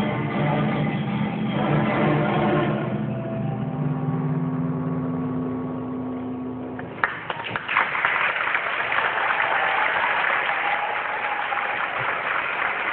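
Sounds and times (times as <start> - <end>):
concert band chord: 0.0 - 6.9
audience applause: 6.9 - 12.9.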